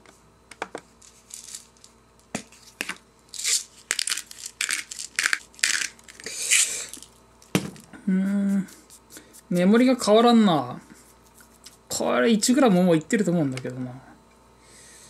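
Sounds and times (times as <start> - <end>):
pepper grinder crunching: 1.0 - 9.7.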